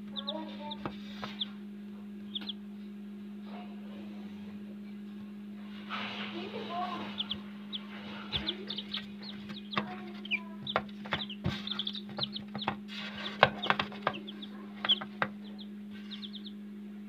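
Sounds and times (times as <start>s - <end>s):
chicks cheeping: 0.0s - 1.6s, 2.2s - 2.9s, 6.0s - 16.7s
steady low hum: 0.0s - 17.0s.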